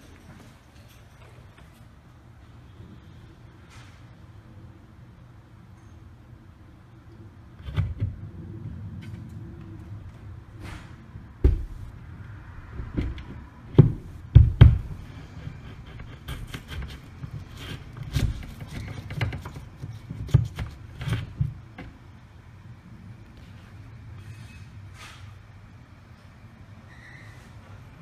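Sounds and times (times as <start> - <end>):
knocks and thumps in a wall: 7.6 - 8.3, 10.6 - 12.0, 12.6 - 22.0.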